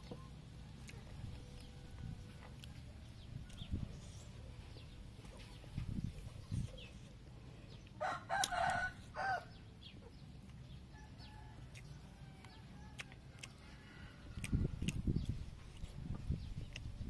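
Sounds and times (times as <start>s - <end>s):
rooster crowing: 8.0s - 9.6s, 10.9s - 14.4s.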